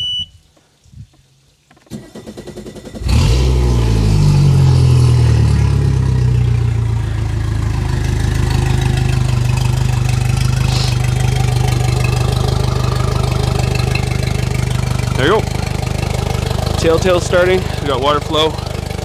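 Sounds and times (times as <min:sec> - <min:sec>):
outboard engine idling: 0:04.4 - 0:19.0.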